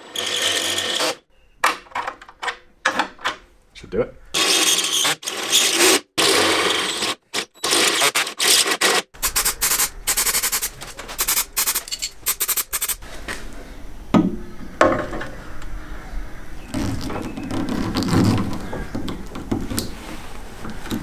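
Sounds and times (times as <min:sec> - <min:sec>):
drill cutting through steel: 0:00.0 - 0:01.2, 0:04.4 - 0:13.0
short rattling strokes: 0:09.2 - 0:13.0.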